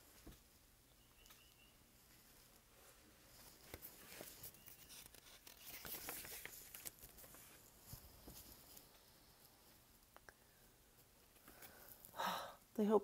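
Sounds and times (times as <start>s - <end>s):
paper pages rustling: 3.3s - 9.0s.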